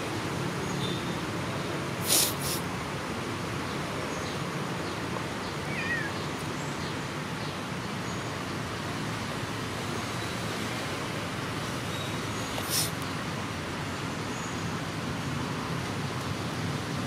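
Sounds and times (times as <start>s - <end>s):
kitten mewing: 5.7s - 6.2s.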